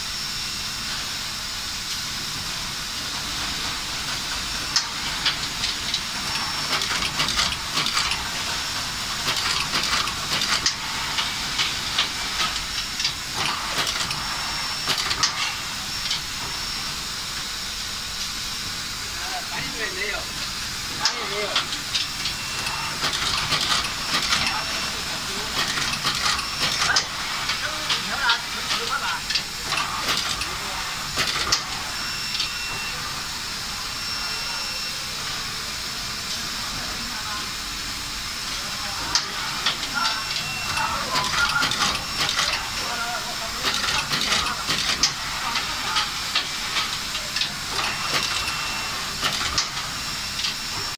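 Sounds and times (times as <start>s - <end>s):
insertion machine clicking and clacking: 3.4s - 16.3s, 21.0s - 32.8s, 39.0s - 50.9s.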